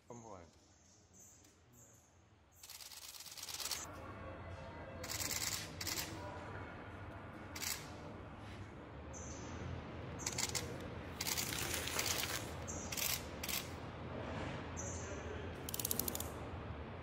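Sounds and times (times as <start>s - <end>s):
low factory hum: 0.0s - 17.0s
tape paper rustling: 11.3s - 12.5s.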